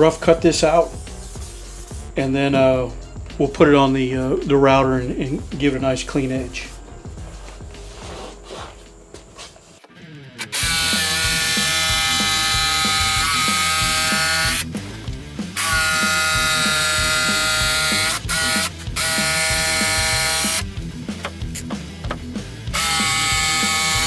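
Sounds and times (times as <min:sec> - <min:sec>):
jigsaw cutting through board: 0:10.5 - 0:14.7, 0:15.6 - 0:20.6, 0:22.7 - 0:24.0.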